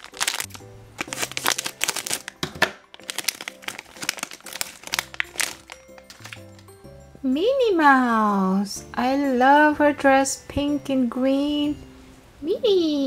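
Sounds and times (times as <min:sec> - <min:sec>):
plastic pouch crinkling: 0:00.0 - 0:06.7.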